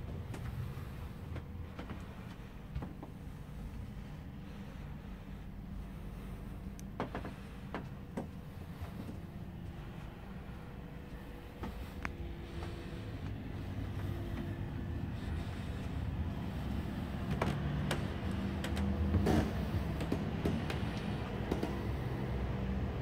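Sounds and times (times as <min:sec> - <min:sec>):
low room rumble and hum: 0:00.0 - 0:23.0.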